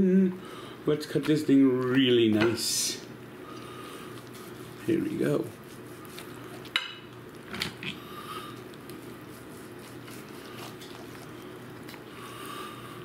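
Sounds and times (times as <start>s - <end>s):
steady low hum: 0.0s - 13.0s
soft squishy cuts: 8.6s - 12.1s.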